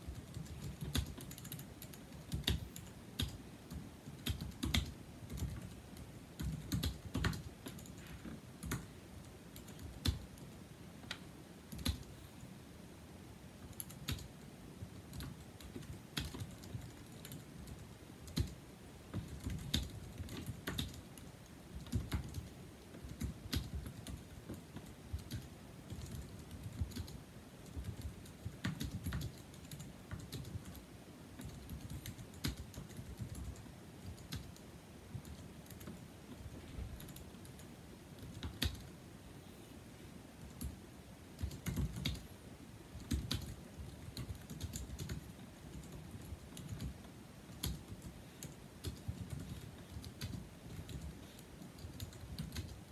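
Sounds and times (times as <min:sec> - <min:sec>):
keyboard typing soft clicks: 0:00.1 - 0:08.9.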